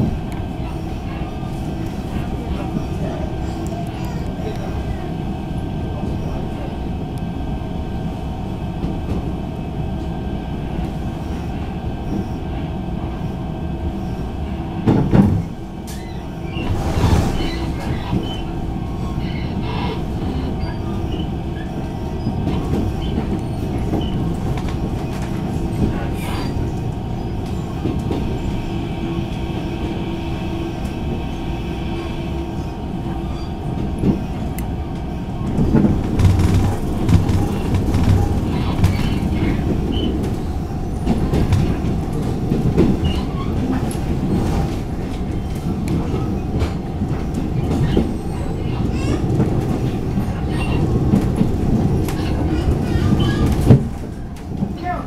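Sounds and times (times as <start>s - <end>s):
train rumble and hum: 0.0s - 55.0s
train wheels knocking: 35.5s - 40.4s.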